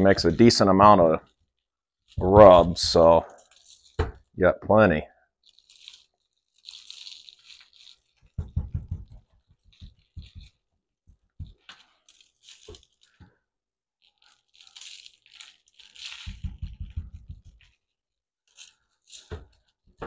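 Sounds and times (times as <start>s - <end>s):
hands rubbing spice onto meat: 5.4s - 10.6s, 11.2s - 13.3s, 14.0s - 17.9s.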